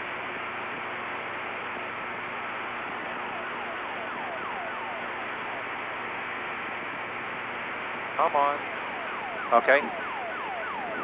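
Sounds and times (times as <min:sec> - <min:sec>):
radio static hiss: 0:02.4 - 0:11.0
falling tone sweep: 0:03.0 - 0:06.0, 0:08.6 - 0:11.0.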